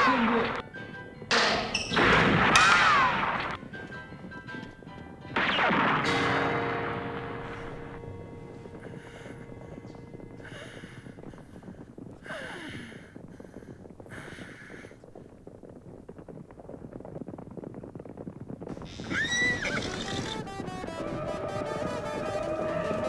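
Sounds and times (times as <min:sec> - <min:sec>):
horse hooves clip-clopping: 0:03.5 - 0:05.4, 0:07.3 - 0:23.0
horse whinnying: 0:18.8 - 0:20.4.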